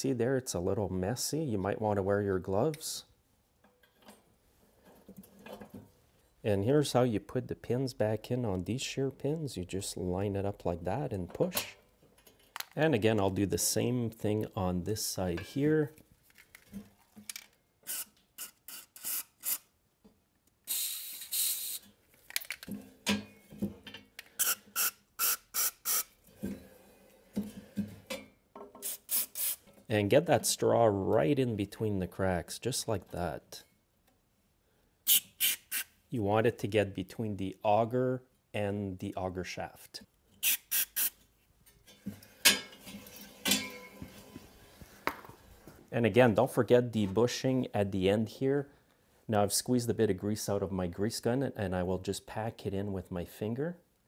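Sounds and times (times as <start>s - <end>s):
aerosol can spraying: 24.4s - 26.1s, 28.8s - 29.6s, 40.4s - 41.1s
metallic clanks and rattles: 41.8s - 44.2s.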